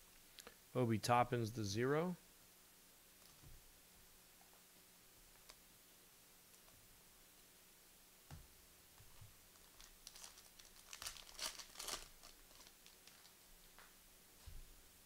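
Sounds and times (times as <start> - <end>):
foil wrapper crinkling and tearing: 9.5 - 13.4.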